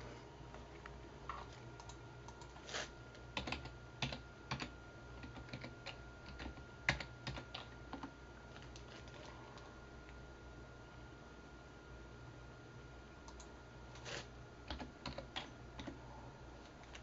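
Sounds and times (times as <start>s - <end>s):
keyboard typing: 1.7s - 2.6s, 3.4s - 9.3s, 14.7s - 16.0s.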